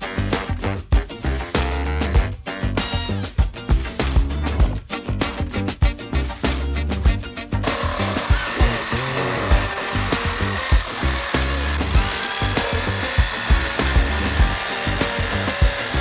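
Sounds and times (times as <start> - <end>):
background music with beat: 0.0 - 16.0
jigsaw cutting wood: 7.6 - 16.0.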